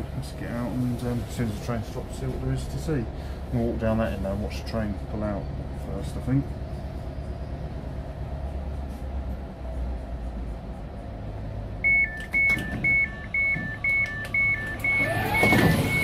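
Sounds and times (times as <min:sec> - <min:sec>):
train low hum: 0:00.0 - 0:15.4
two-tone train door warning beeps: 0:11.8 - 0:16.0.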